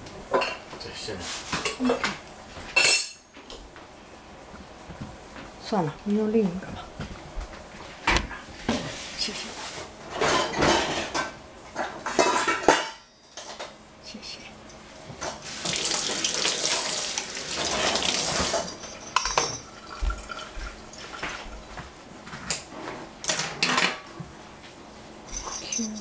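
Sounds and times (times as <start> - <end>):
dishes clattering in sink: 0.3 - 0.6, 1.5 - 3.2, 10.1 - 13.7, 15.2 - 21.5, 23.2 - 24.1
tap running: 19.3 - 22.6.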